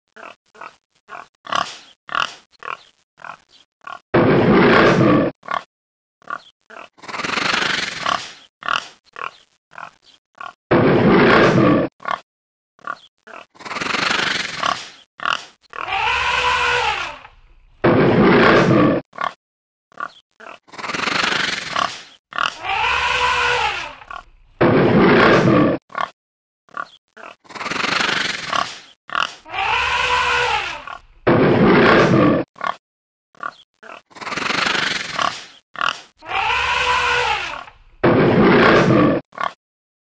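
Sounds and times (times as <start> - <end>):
cartoon pig grunts and growls: 0.1 - 12.2, 12.8 - 32.8, 33.4 - 39.6
cartoon pitched call: 15.8 - 17.3, 22.5 - 24.1, 29.4 - 31.0, 36.2 - 37.7.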